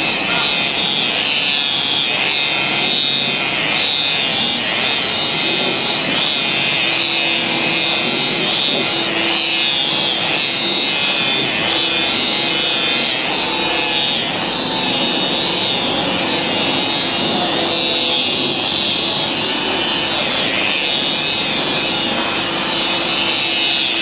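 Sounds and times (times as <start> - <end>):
rotary polisher motor whine: 0.0 - 24.0.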